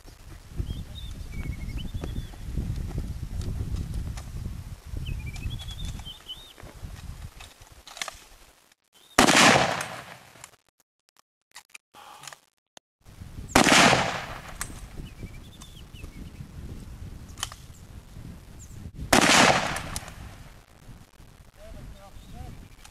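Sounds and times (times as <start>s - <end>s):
rifle shots ringing: 9.2s - 10.4s, 13.6s - 14.8s, 19.1s - 20.2s.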